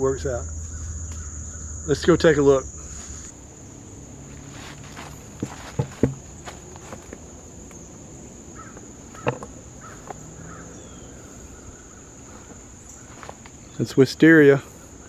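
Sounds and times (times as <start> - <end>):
high insect drone: 0.0 - 15.0
footsteps crunching leaves: 4.2 - 7.4, 12.2 - 13.7
twigs snapping: 4.4 - 7.8.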